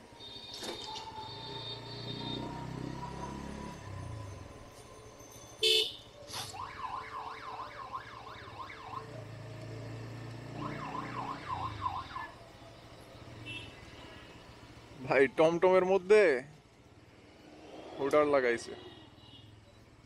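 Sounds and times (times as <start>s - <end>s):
electronic siren horn warbling: 0.2s - 4.1s, 10.5s - 12.3s.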